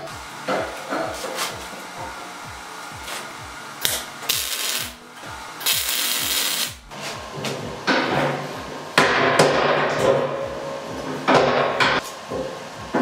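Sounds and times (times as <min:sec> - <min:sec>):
background music with steady beat: 0:00.0 - 0:13.0
welder crackling: 0:03.8 - 0:05.0, 0:05.6 - 0:06.9.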